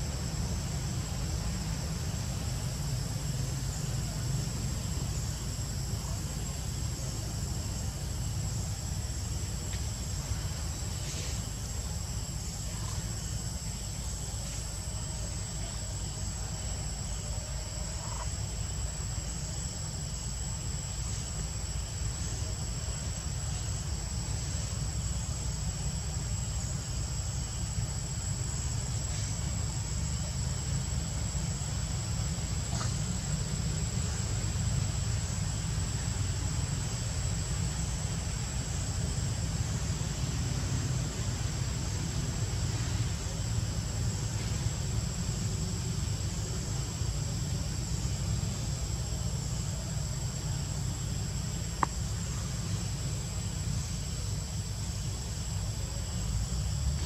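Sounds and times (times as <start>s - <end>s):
insects buzzing: 0.0s - 57.0s.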